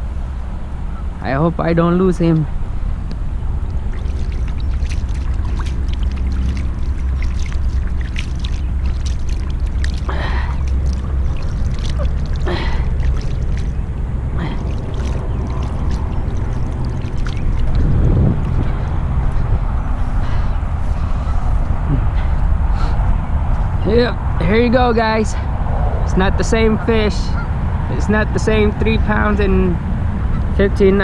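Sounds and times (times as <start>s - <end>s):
wind rumble on microphone: 0.0s - 31.0s
water splashing: 3.5s - 21.4s.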